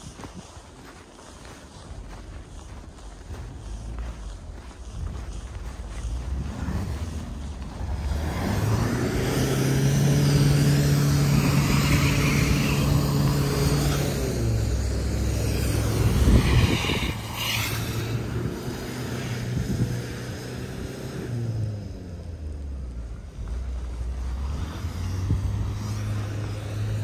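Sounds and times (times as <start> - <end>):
vehicle engine hum passing: 0.0 - 27.0.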